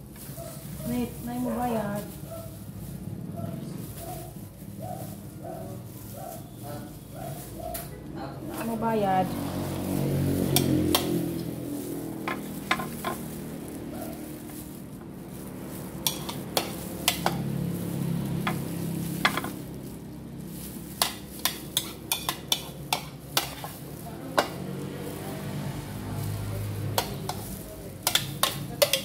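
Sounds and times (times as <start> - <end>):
metal spoon scraping a bowl: 10.5 - 11.5, 12.2 - 13.3, 16.0 - 19.6, 20.9 - 24.6, 26.9 - 29.0.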